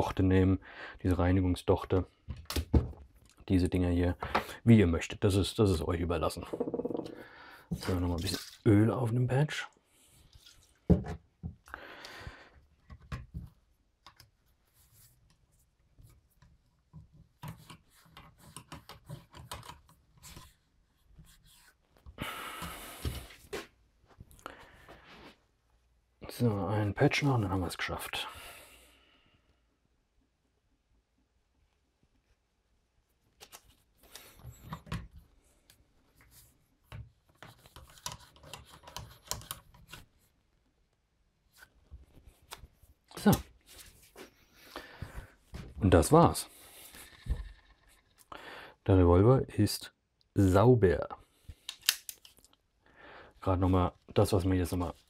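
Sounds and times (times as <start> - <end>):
metallic clicks of gun handling: 51.6 - 52.6.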